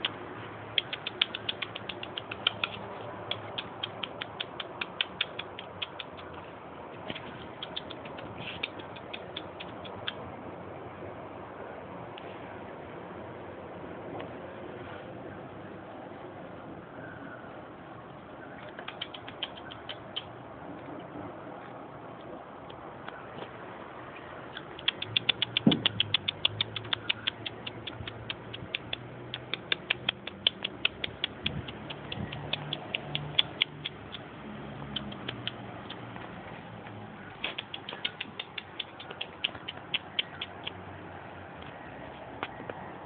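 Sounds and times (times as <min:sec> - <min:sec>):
person clicking with mouth: 0:00.0 - 0:06.5, 0:07.1 - 0:10.4, 0:18.6 - 0:20.5, 0:24.5 - 0:41.0.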